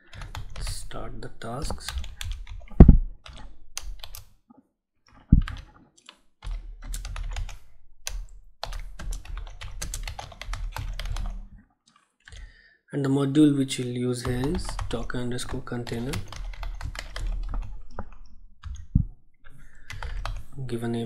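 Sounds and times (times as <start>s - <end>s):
typing on computer keyboard: 0.0s - 0.8s, 1.6s - 4.3s, 5.1s - 11.5s, 14.2s - 19.0s, 19.8s - 20.5s.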